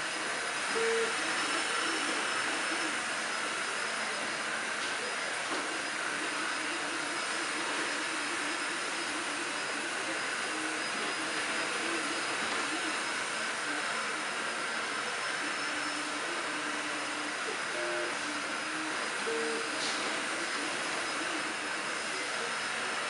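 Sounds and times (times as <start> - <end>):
cooling fans whirring with whine: 0.0 - 23.0
stepper motor tones: 0.0 - 23.0.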